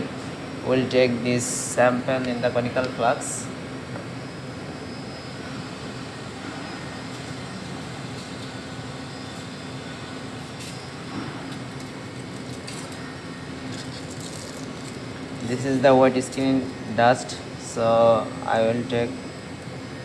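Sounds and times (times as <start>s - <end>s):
air-handling hum and hiss: 0.0s - 20.0s
aluminium foil crinkling: 11.8s - 13.1s, 13.7s - 15.6s.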